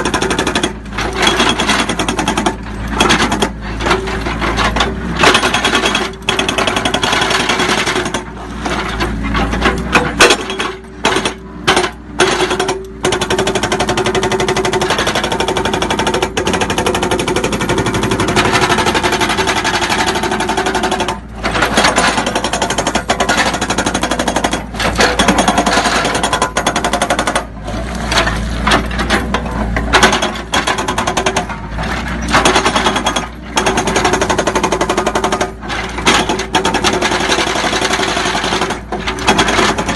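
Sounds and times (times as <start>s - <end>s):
hydraulic breaker hammering rock: 0.0s - 39.9s.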